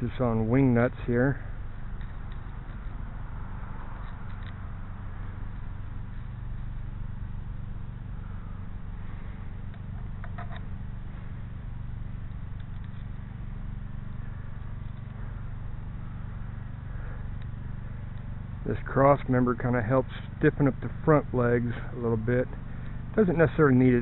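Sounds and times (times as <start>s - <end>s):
steady low hum: 0.0s - 24.0s
faint metal parts clicking: 3.9s - 4.6s, 9.7s - 10.7s, 12.2s - 13.2s.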